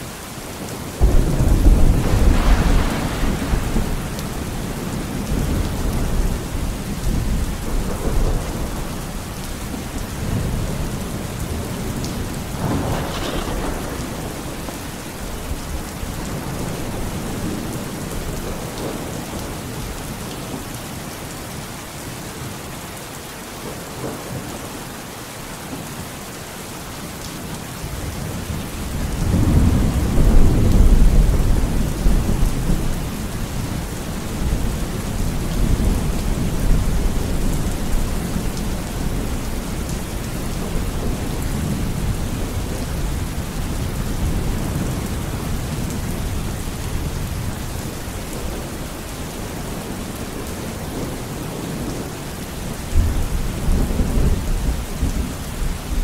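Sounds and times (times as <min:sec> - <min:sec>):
steady rain: 0:00.0 - 0:56.0
thunder rumbling: 0:00.6 - 0:19.6, 0:28.1 - 0:48.8.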